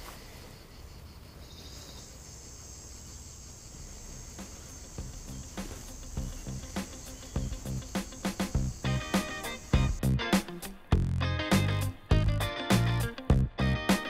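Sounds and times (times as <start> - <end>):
insects chirring: 0.0 - 10.9.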